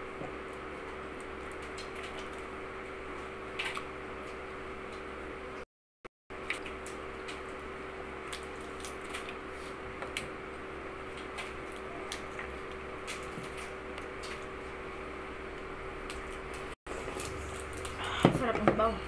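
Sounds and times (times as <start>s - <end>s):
steady background hum: 6.3s - 19.0s
crab shells cracking: 8.2s - 9.5s, 16.0s - 18.1s.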